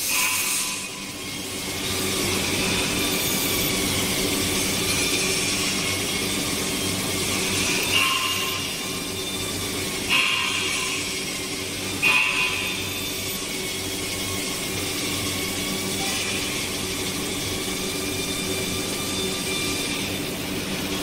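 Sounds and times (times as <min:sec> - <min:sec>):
brief squeal: 0:00.0 - 0:01.3
belt grinding hiss on metal: 0:00.0 - 0:21.0.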